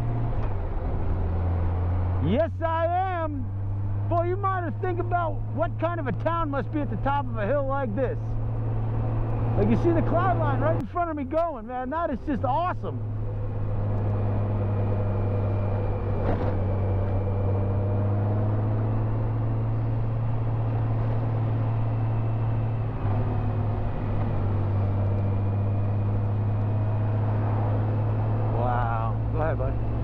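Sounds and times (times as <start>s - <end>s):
motorcycle engine droning: 0.0s - 30.0s.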